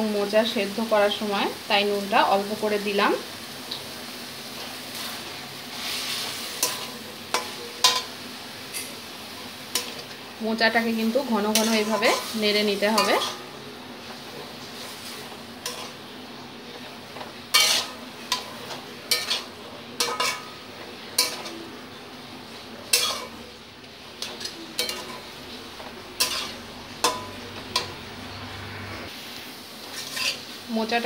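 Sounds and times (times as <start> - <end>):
food sizzling: 0.0 - 31.0
metal spatula scraping pan: 11.4 - 13.5, 14.9 - 16.0, 17.1 - 21.6, 22.9 - 23.4, 24.2 - 28.0, 29.9 - 30.5
spatula clinking against pan: 17.6 - 20.5, 21.2 - 21.6, 22.9 - 23.3, 24.2 - 25.2, 26.2 - 28.0.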